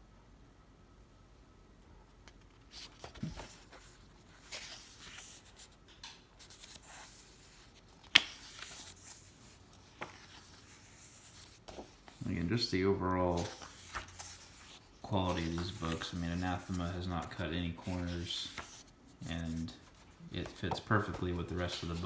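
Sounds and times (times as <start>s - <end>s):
book pages turning: 2.2s - 22.0s
hand brushing across pages: 6.4s - 22.0s.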